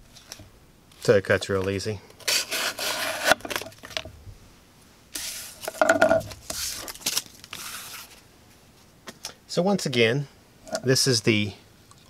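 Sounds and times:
knife slicing through cardboard: 0:02.3 - 0:03.4.

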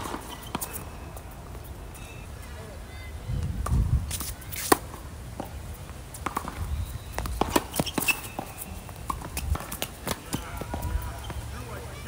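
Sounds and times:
racket hitting tennis ball: 0:00.0 - 0:01.7, 0:03.6 - 0:11.4
footsteps on court: 0:03.5 - 0:11.8
ball bouncing on hard court: 0:06.2 - 0:08.5.

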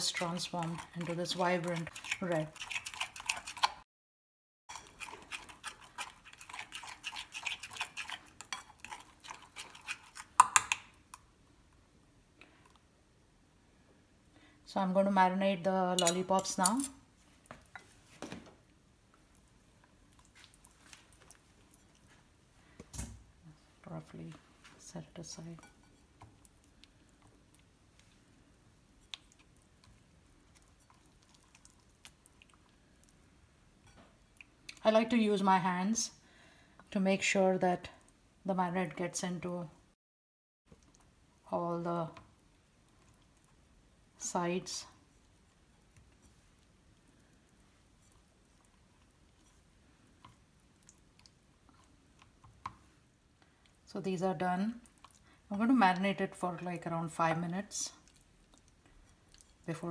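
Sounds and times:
metal spoon stirring in a bowl: 0:00.0 - 0:03.8, 0:04.7 - 0:10.8, 0:16.0 - 0:17.0, 0:25.4 - 0:26.5
wet squishing of marinade: 0:26.2 - 0:33.3, 0:44.9 - 0:53.9.

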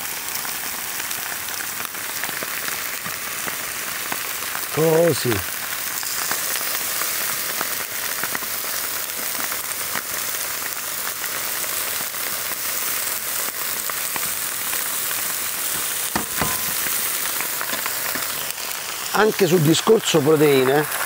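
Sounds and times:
meat sizzling in oil: 0:00.0 - 0:21.0
sharp knock: 0:16.1 - 0:16.9.

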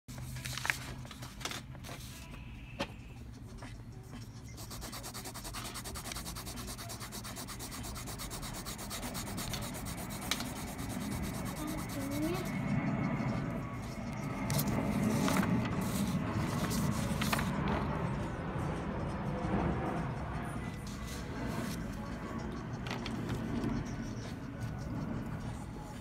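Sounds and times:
pencil scratching on paper: 0:03.3 - 0:17.6, 0:20.8 - 0:26.0.

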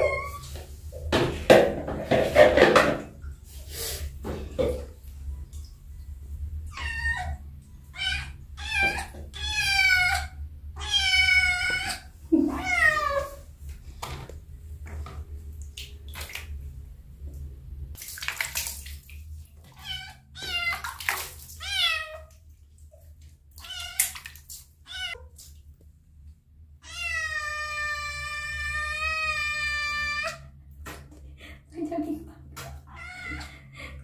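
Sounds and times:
kitten meowing: 0:08.0 - 0:13.3, 0:24.9 - 0:25.2, 0:26.8 - 0:30.4
water splashing: 0:15.5 - 0:16.8, 0:18.0 - 0:25.6.

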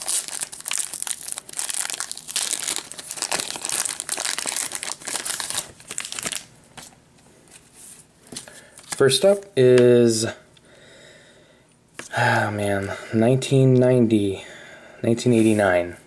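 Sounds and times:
plastic wrapper crinkling: 0:00.0 - 0:06.9.

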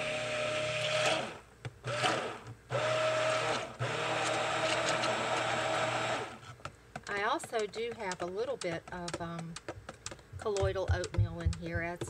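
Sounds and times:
stick blender whirring: 0:00.0 - 0:09.4.

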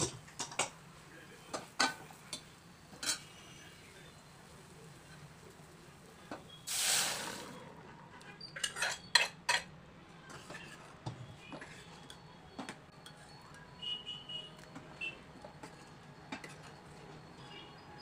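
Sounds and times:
ladle stirring and clinking pot: 0:08.4 - 0:09.7.

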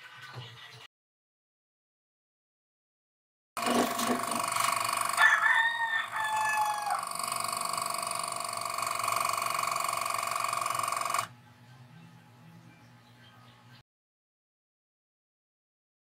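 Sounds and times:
compressor motor running: 0:03.6 - 0:11.3.

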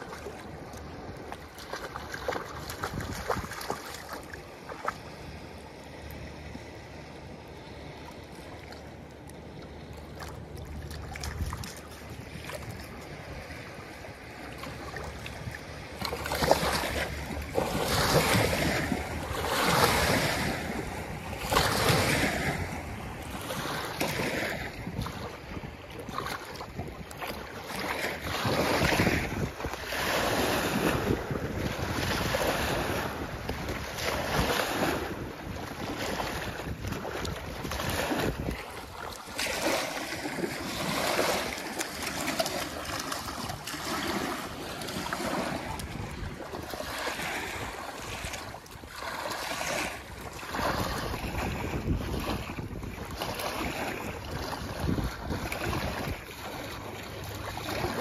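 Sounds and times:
river waves washing against bank: 0:00.0 - 0:58.0
wind buffeting microphone: 0:00.6 - 0:04.2, 0:15.3 - 0:56.8
dog splashing through water: 0:01.2 - 0:05.0, 0:35.6 - 0:52.4.

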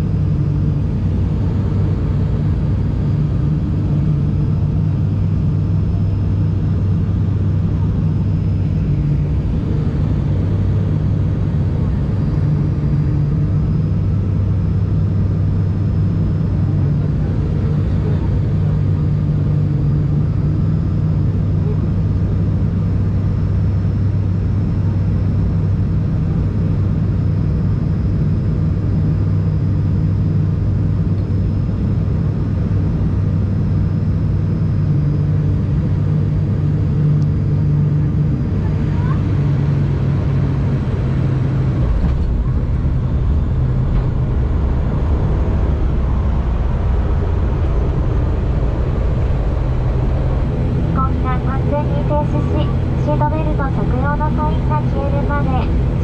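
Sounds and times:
deep aircraft rumble on runway: 0:00.0 - 0:56.0
turboprop cabin drone: 0:00.0 - 0:56.0.

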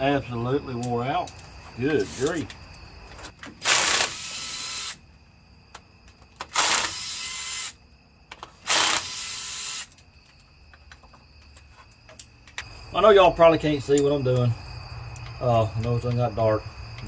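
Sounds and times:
cordless power tool bursts: 0:03.6 - 0:05.0, 0:06.4 - 0:07.8, 0:08.6 - 0:09.9.

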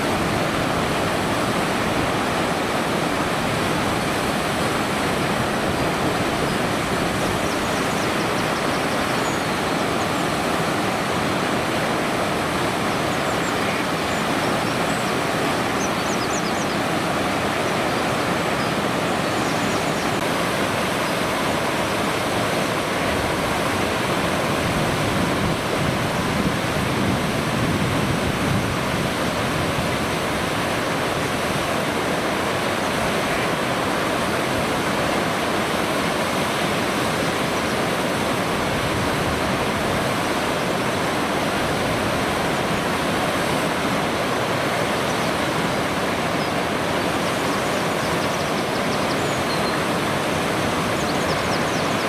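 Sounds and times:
river water flowing: 0:00.0 - 0:52.0.

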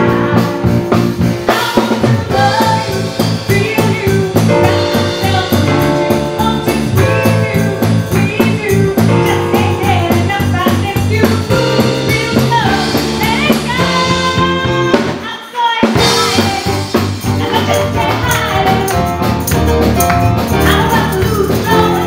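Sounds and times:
electric bass: 0:00.0 - 0:15.2, 0:16.0 - 0:22.0
drum kit: 0:00.0 - 0:22.0
woman singing into microphone: 0:01.5 - 0:19.1, 0:20.6 - 0:22.0.

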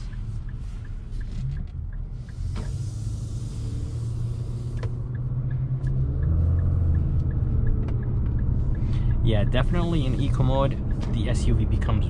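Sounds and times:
engine and road rumble: 0:00.0 - 0:12.0
light regular ticking: 0:00.0 - 0:12.0.

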